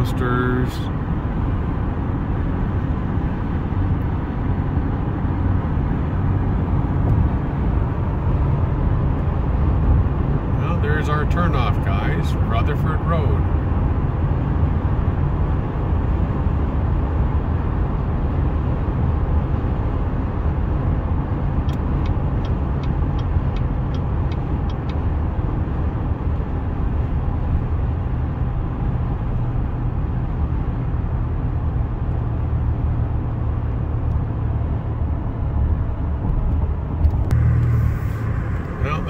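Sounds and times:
car road and engine noise: 0.0s - 39.0s
light ticks: 21.6s - 25.0s.

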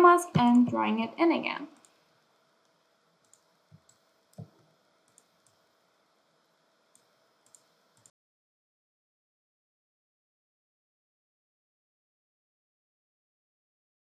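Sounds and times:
computer mouse clicking: 2.6s - 5.6s, 6.9s - 8.1s.

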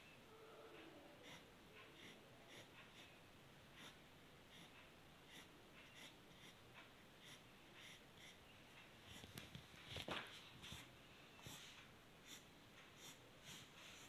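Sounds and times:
pencil scratching on paper: 1.2s - 3.1s, 3.8s - 6.6s, 7.2s - 8.4s, 10.6s - 14.0s.

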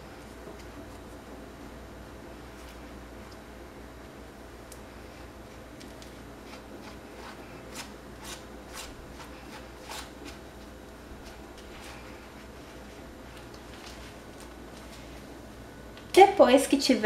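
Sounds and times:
steady low hum: 0.0s - 17.0s
plastic spatula scraping a pad: 6.4s - 10.4s.

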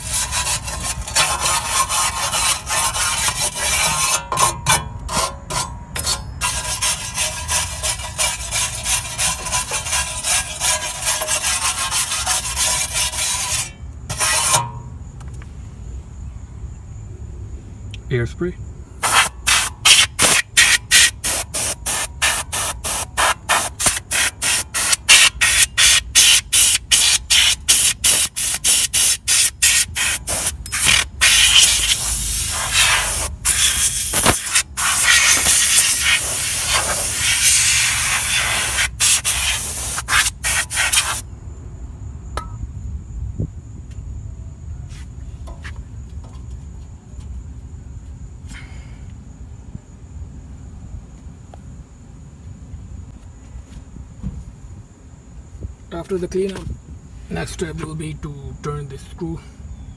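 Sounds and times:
aerosol spray can hissing: 19.0s - 41.2s.

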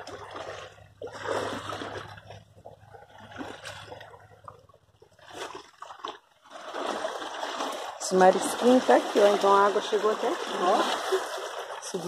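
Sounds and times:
river water rushing: 6.6s - 12.0s.

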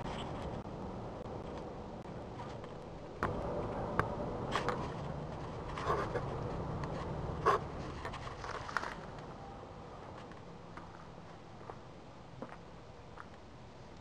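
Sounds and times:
camera scraping on glass: 4.5s - 9.1s.

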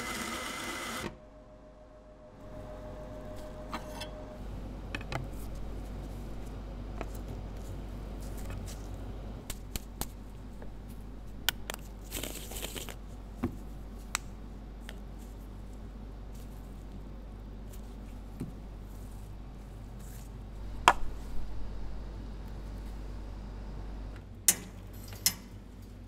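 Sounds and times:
coffee grinder running: 0.0s - 1.1s
steady low hum: 1.1s - 26.0s.

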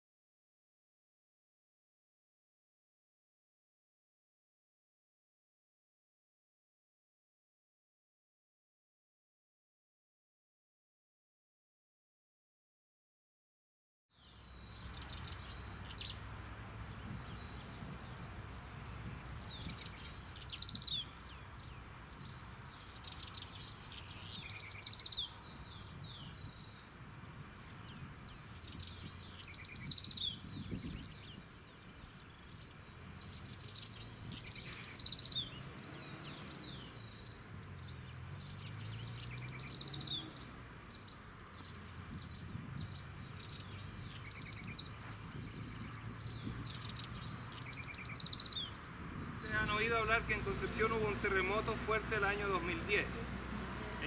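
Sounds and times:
birds singing and chirping: 14.2s - 54.0s.

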